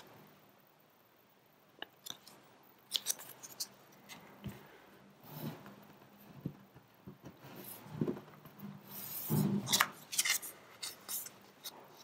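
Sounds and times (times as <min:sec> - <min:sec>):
paper rustling and rubbing: 0:07.4 - 0:12.0.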